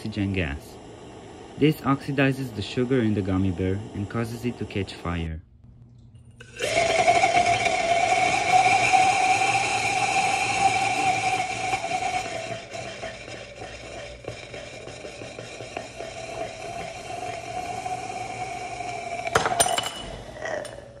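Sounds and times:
chemical burning hiss: 0:00.0 - 0:05.4, 0:06.5 - 0:21.0
glass tube clattering on floor: 0:19.3 - 0:20.2.

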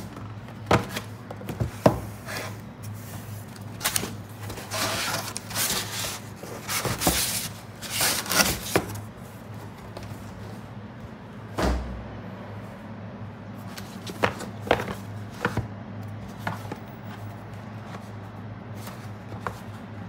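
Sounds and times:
cardboard flaps scraping: 0:00.0 - 0:09.0.

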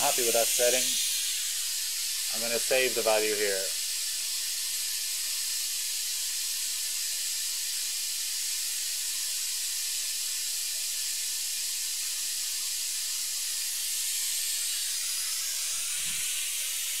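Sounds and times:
faint hum tones: 0:00.0 - 0:03.8
steady hiss: 0:00.0 - 0:05.2.

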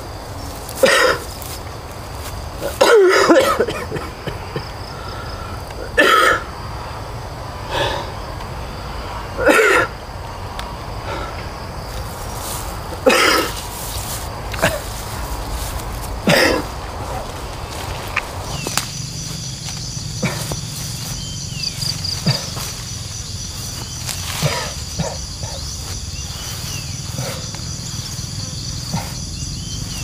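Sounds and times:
person coughing: 0:00.8 - 0:01.3, 0:02.6 - 0:04.7, 0:05.8 - 0:06.5, 0:09.4 - 0:09.9, 0:13.0 - 0:13.6, 0:14.6 - 0:14.9, 0:16.2 - 0:16.7, 0:24.4 - 0:25.2.

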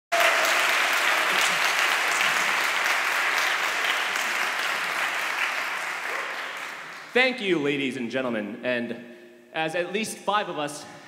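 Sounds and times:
audience applauding: 0:00.1 - 0:07.2.

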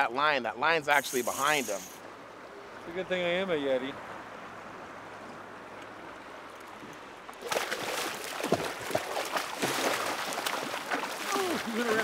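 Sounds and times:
river water running: 0:00.0 - 0:12.0
fish thrashing and splashing: 0:07.4 - 0:12.0.

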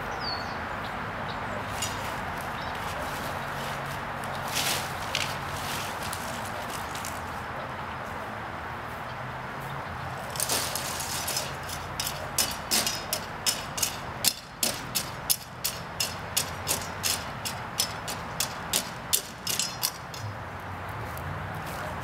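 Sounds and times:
broom sweeping: 0:01.6 - 0:07.3, 0:10.2 - 0:12.3.

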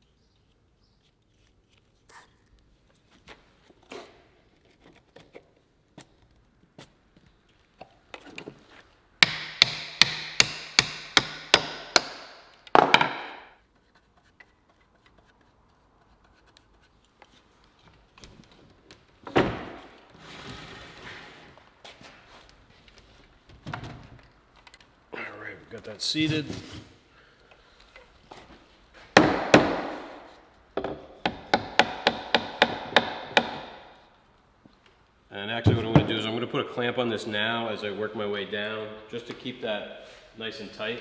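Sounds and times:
taps and rubs of spreading glue: 0:13.6 - 0:18.0
wood scraping on wood: 0:19.7 - 0:22.5.

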